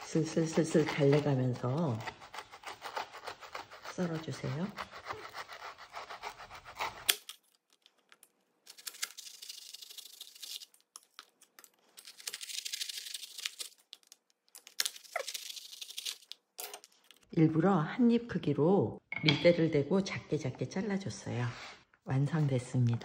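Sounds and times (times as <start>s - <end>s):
knife sawing through candy bar: 0.0s - 7.3s.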